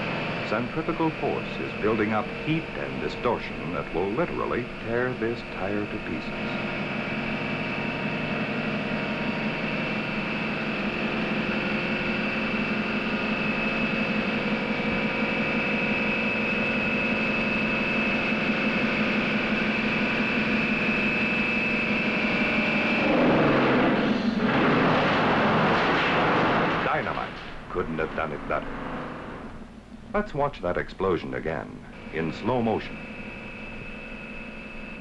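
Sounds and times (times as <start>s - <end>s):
tire test wheel whining: 0.0s - 35.0s
tire blowing apart: 22.9s - 29.6s.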